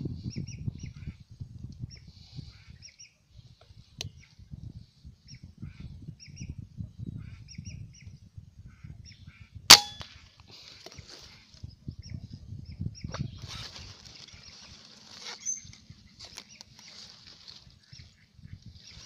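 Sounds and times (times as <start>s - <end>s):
air rifle shot: 9.7s - 10.2s.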